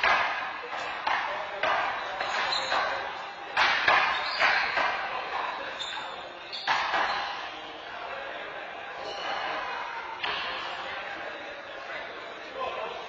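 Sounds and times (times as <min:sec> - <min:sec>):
handball smacking in a hall: 0:00.0 - 0:07.6.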